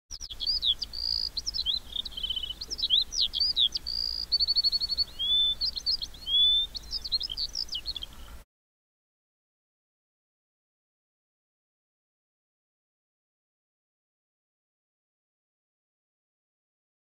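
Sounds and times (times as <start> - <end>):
songbirds singing: 0.1 - 8.4.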